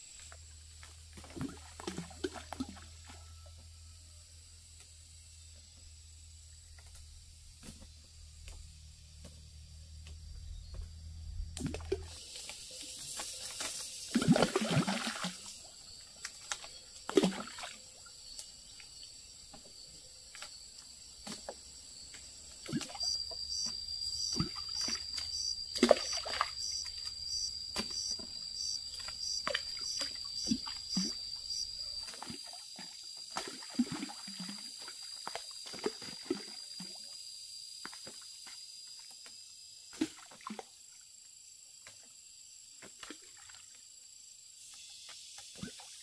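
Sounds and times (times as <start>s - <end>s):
water splashing and dribbling: 0.1s - 3.3s, 11.5s - 37.2s, 39.9s - 41.0s, 42.8s - 43.9s, 45.4s - 46.0s.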